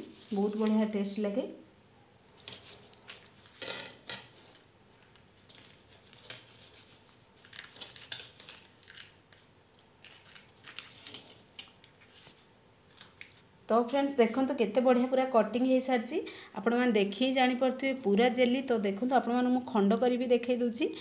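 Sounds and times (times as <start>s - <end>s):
knife cutting jelly on paper: 5.5s - 9.2s.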